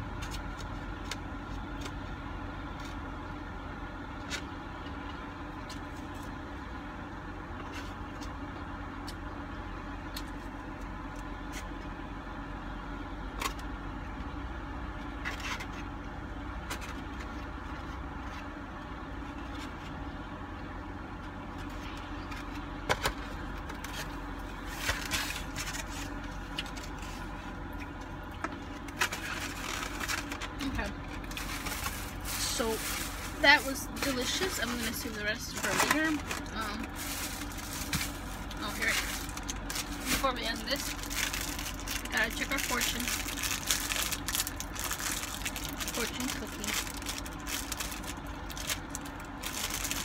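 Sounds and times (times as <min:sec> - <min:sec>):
car engine hum inside cabin: 0:00.0 - 0:50.0
rustling of takeout box: 0:21.6 - 0:50.0.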